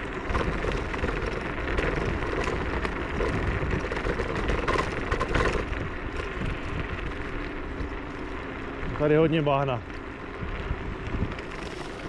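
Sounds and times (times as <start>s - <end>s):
tyres rumbling on rough track: 0.0s - 12.0s
wind on microphone: 10.3s - 12.0s.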